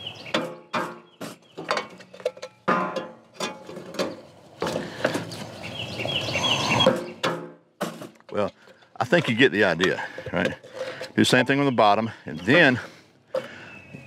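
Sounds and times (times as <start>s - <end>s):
metal grating: 6.2s - 11.6s.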